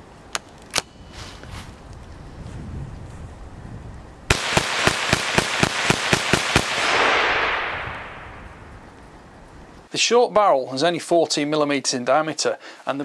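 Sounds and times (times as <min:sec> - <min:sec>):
rifle shots: 0:04.3 - 0:08.4
rush of noise: 0:06.6 - 0:09.5.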